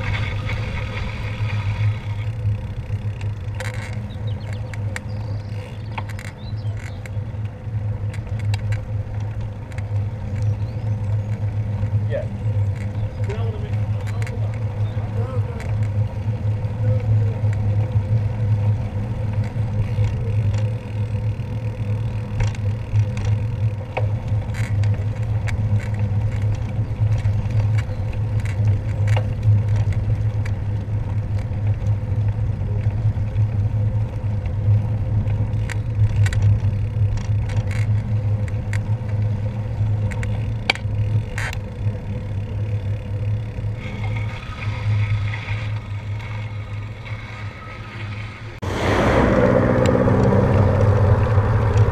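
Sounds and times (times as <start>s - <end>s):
bike clicks and rattles: 0.0s - 48.6s, 49.8s - 51.9s
bicycle tyre noise: 0.0s - 51.9s
wind buffeting: 44.1s - 51.9s.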